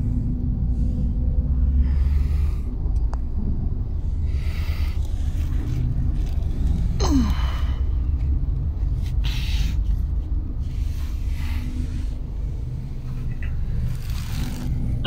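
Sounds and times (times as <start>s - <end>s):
car engine rumble inside cabin: 0.0s - 15.0s
road noise: 0.0s - 15.0s.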